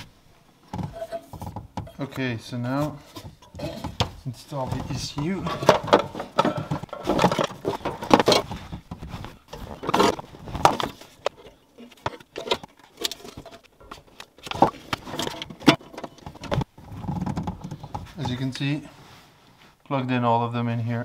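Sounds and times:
hands handling plastic connectors: 2.8 - 18.6.

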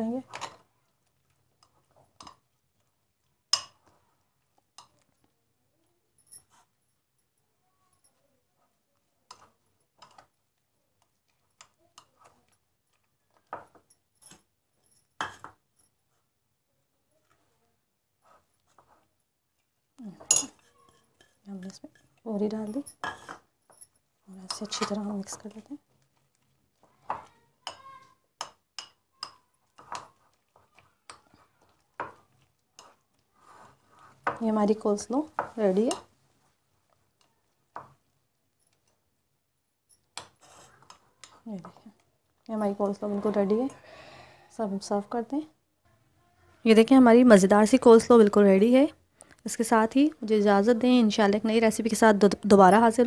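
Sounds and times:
spoon stirring coleslaw: 0.2 - 7.4, 8.0 - 43.8
metal spoon clinking on glass bowl: 20.2 - 24.9, 27.2 - 30.1.

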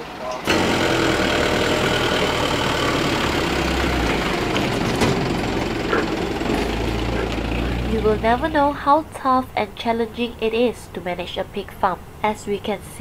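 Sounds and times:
truck diesel engine running: 0.0 - 10.3.

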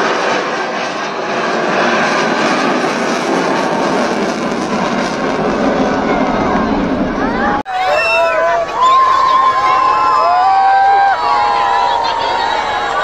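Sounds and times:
jet aircraft flying overhead: 0.0 - 7.8, 8.4 - 13.0.

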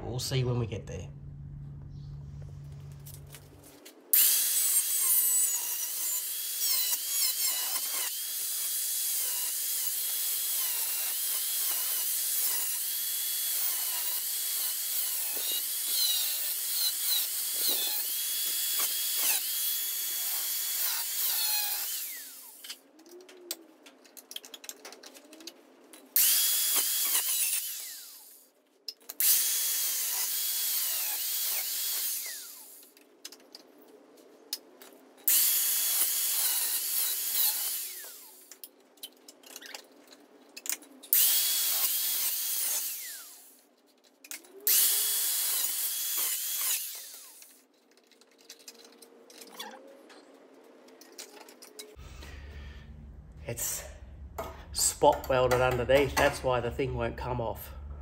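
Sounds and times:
angle grinder cutting steel: 4.1 - 22.8, 26.2 - 28.4, 29.2 - 32.8, 35.3 - 38.6, 41.1 - 43.6, 44.6 - 47.6.

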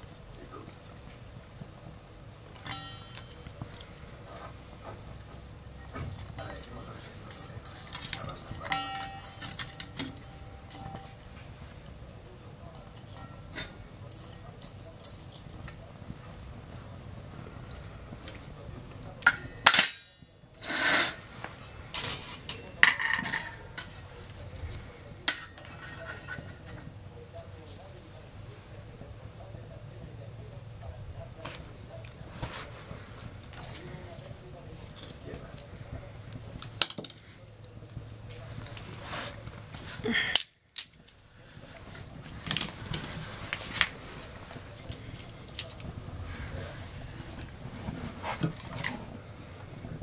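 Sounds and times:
metal clanking on stove: 2.6 - 3.5, 5.3 - 11.2, 19.2 - 21.2, 21.9 - 24.1, 25.2 - 26.9
metal scrape: 20.6 - 22.6.

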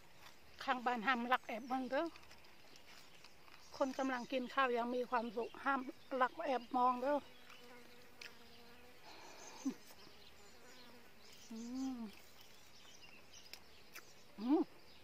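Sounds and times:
flying insect buzzing: 7.2 - 12.3
person humming: 11.5 - 12.2, 14.4 - 14.7.

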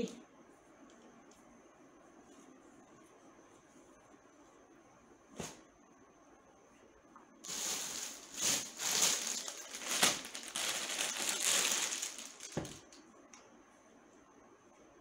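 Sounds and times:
plastic packaging crinkling: 7.4 - 13.0.

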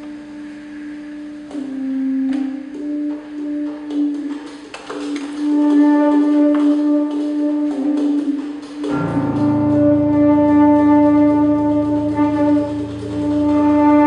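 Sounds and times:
saxophone holding a long note: 1.0 - 4.5, 5.2 - 14.0
low pulsing piano drone: 8.8 - 14.0.

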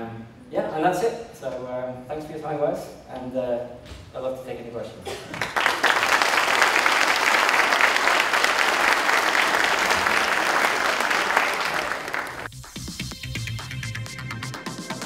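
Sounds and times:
audience applauding: 5.3 - 12.5.

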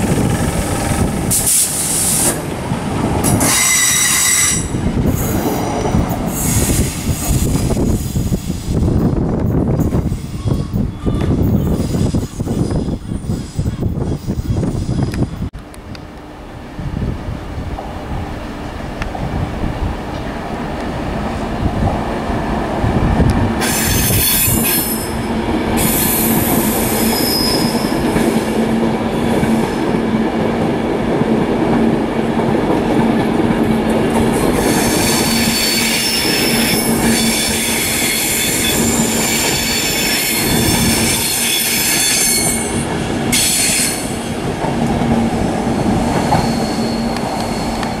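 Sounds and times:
low hum of train: 0.0 - 48.0
train wheels rumbling on rail: 0.0 - 48.0
wheels squealing on rails: 1.1 - 2.4, 3.2 - 15.5, 23.6 - 29.8, 34.3 - 44.4, 45.1 - 48.0.

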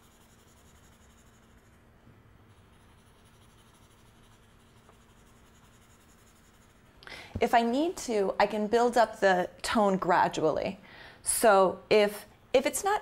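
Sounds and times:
pencil scratching on paper: 0.0 - 1.8, 2.5 - 6.9
low steady hum: 0.0 - 12.9.

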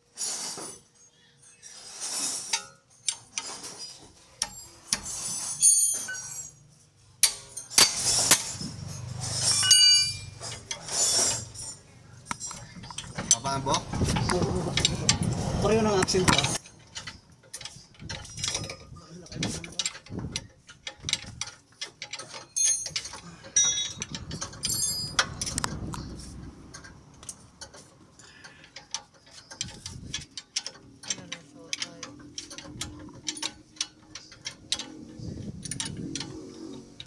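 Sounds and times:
hand tools clicking on metal: 7.2 - 15.4, 16.0 - 37.0.

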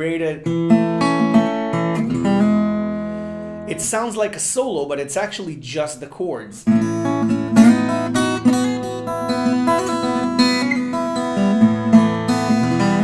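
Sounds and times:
fingerstyle acoustic guitar: 0.4 - 4.0, 6.6 - 13.0.

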